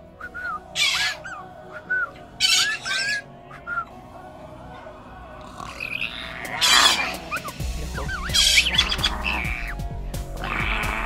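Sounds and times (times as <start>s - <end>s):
parrot squawks: 0.7s - 1.4s, 2.4s - 3.3s, 5.6s - 9.8s, 10.4s - 11.0s
parrot whistles: 6.7s - 9.8s.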